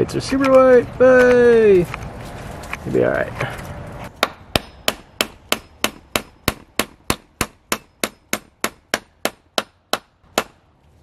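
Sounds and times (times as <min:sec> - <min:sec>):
hammer striking nail: 0:04.2 - 0:10.6.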